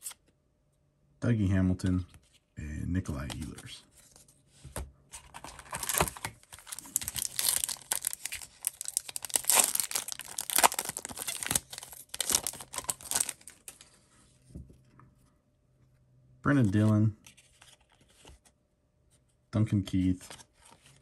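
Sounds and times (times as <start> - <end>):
card pack wrapper tearing: 5.4 - 13.8.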